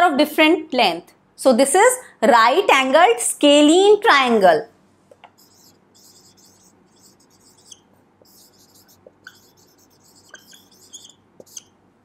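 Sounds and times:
marker pen scratching whiteboard: 5.4 - 11.7
marker squeaks: 5.4 - 11.8.

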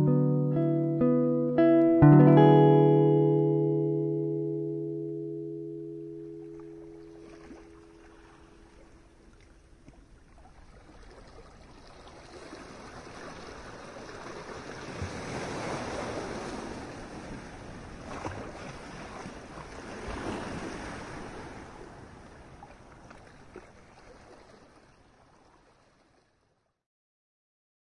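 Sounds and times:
ocean waves breaking: 6.1 - 9.8, 10.4 - 26.2.

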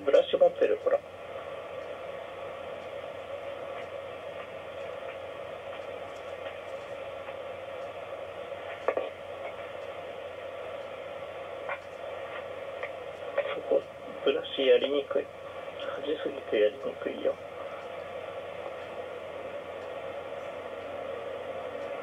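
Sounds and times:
speech: 0.0 - 1.1, 13.4 - 17.4
television hiss and hum: 0.0 - 22.0.

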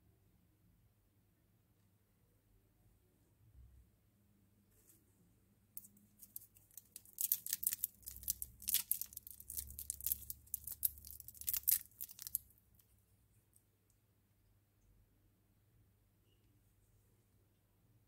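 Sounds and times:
foil wrapper crinkling and tearing: 6.2 - 12.4.

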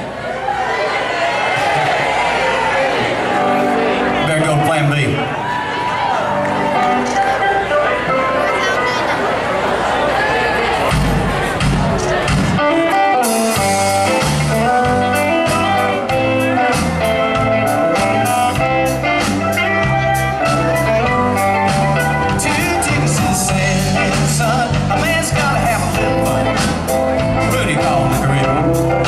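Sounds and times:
electric guitar: 5.5 - 9.8, 10.9 - 29.0
bass line: 10.6 - 29.0
drums and cymbals: 10.8 - 29.0.

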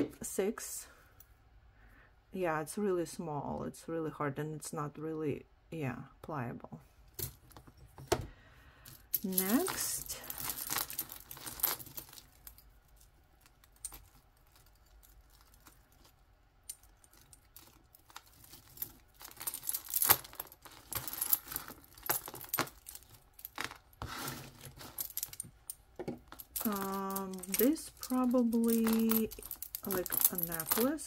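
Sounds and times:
jewelry chains jangling and clinking: 8.9 - 31.0.

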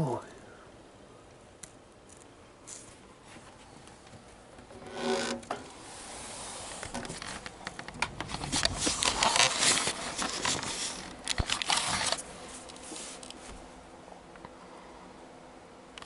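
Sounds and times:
curtains rustling and scraping: 4.7 - 7.5, 8.3 - 13.7.

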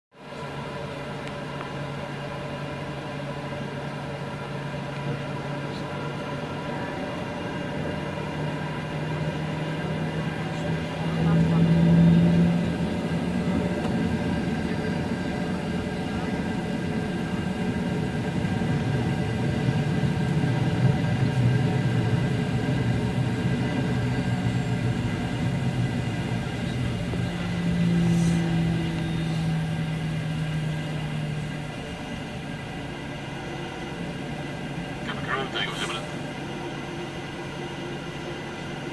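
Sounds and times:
jet engine drone: 0.2 - 38.9
thin engine whine: 0.2 - 38.9.

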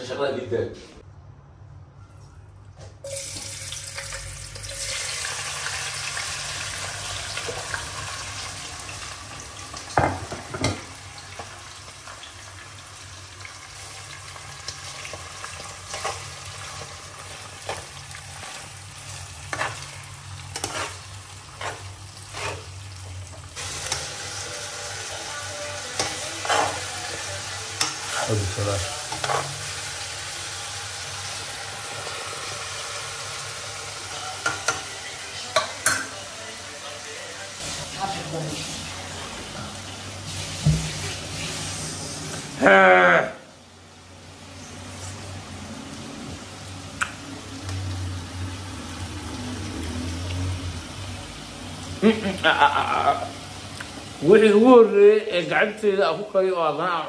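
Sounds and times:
food sizzling in hot oil: 3.0 - 42.6
metal spoon scraping a pan: 17.6 - 22.9, 23.5 - 29.8.

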